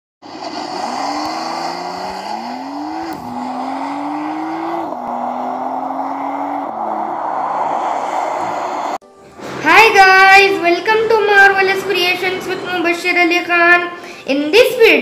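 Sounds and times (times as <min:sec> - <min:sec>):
rushing noise of car at speed: 0:00.2 - 0:09.0
sports car engine accelerating: 0:00.2 - 0:09.0.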